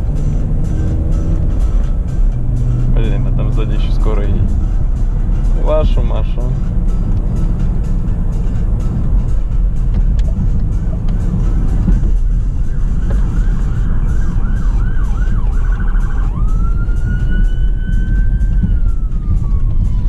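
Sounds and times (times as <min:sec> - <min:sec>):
car engine and road rumble: 0:00.0 - 0:20.0
ambulance siren: 0:11.3 - 0:20.0.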